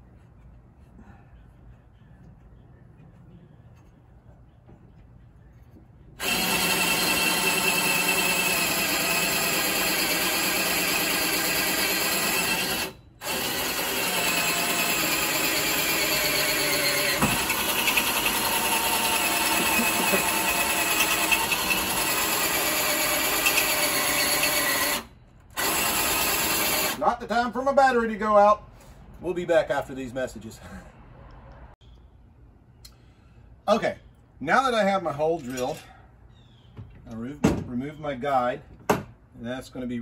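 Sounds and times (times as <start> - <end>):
electric drill boring: 6.2 - 27.0.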